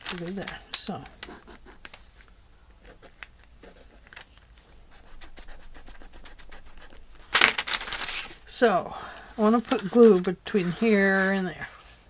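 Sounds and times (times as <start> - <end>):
pen scratching on paper: 1.3 - 1.9, 2.8 - 7.3.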